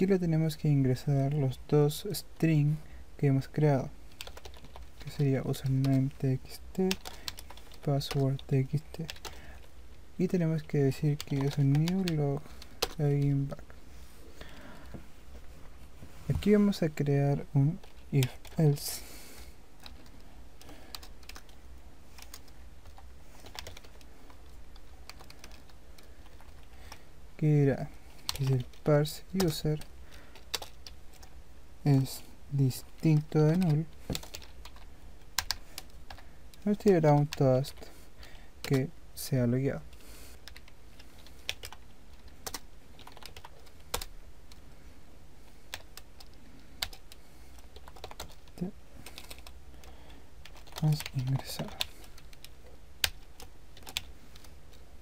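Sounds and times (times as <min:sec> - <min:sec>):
low steady hum: 0:00.0 - 0:55.0
keyboard keys tapping: 0:04.1 - 0:09.7, 0:10.6 - 0:13.6, 0:22.2 - 0:27.0, 0:28.2 - 0:31.4, 0:32.8 - 0:37.8, 0:40.4 - 0:44.6, 0:45.7 - 0:54.8.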